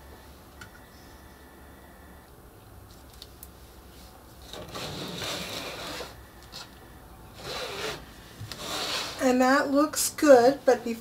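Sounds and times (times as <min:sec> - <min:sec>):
plastic mat scraping on tabletop: 0:04.4 - 0:06.7, 0:07.4 - 0:09.4.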